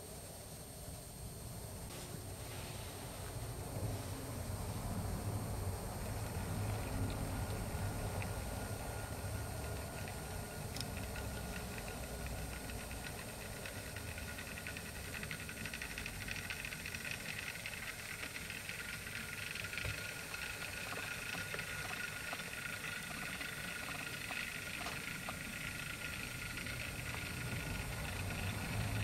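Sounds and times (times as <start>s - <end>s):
model locomotive whirring and rattling: 2.3s - 29.0s
faint clicks: 6.1s - 29.0s.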